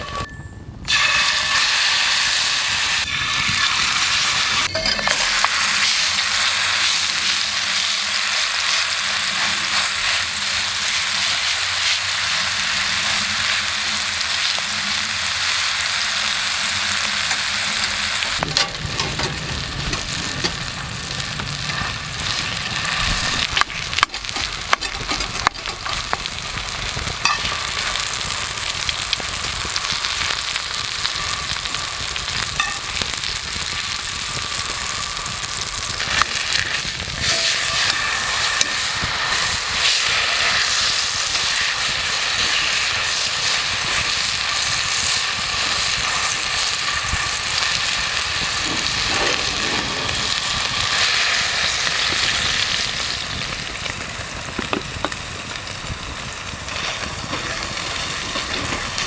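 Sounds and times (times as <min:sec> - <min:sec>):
steak sizzling in skillet: 0:00.9 - 0:59.0.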